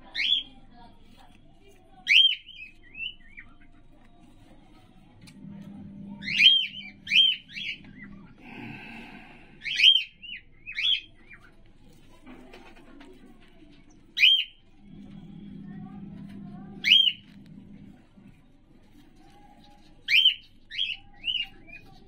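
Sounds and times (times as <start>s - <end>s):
cockatiel chirping: 0.1s - 0.5s, 2.0s - 4.0s, 6.2s - 8.0s, 9.6s - 11.6s, 14.2s - 14.6s, 16.8s - 17.3s, 19.0s - 22.0s.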